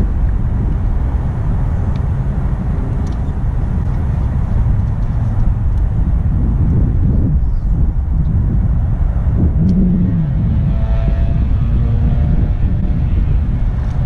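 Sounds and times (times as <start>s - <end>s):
wind rumbling on microphone: 0.0s - 14.0s
faint light clicks: 3.0s - 4.0s.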